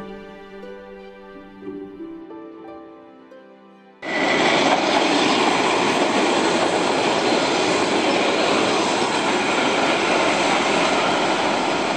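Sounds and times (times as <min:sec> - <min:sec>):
train wheels on rails: 0:04.0 - 0:11.9.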